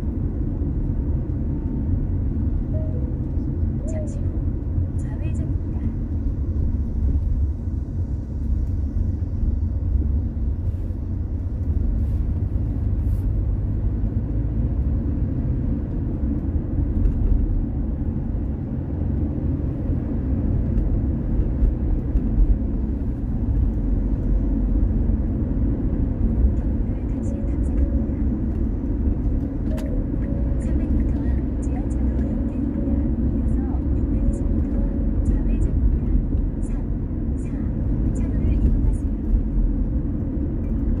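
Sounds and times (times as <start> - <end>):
car driving on road: 0.0 - 41.0.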